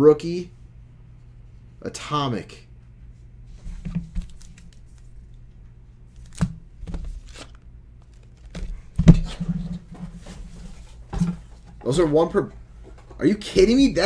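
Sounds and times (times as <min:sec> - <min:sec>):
trading cards and wrappers rustling: 0:04.2 - 0:05.1, 0:06.1 - 0:09.0.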